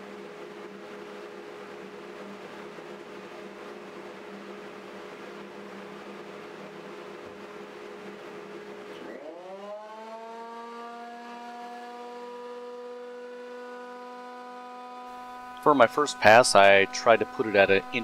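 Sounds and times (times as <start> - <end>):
steady hum: 0.0 - 18.0
jointer motor whine: 8.9 - 18.0.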